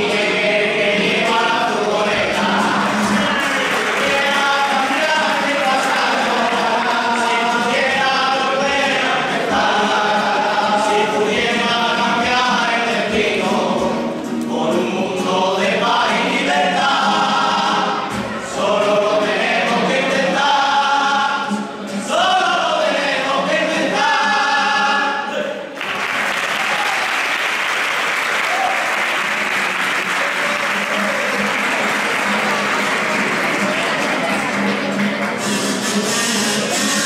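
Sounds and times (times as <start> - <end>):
choir singing: 0.0 - 25.7
audience applauding: 2.4 - 7.4, 25.7 - 36.2.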